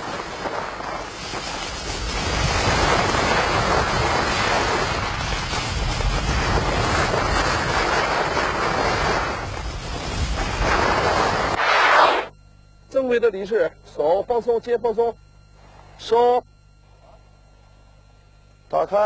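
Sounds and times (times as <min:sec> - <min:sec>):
skis scraping over snow: 0:00.0 - 0:12.3.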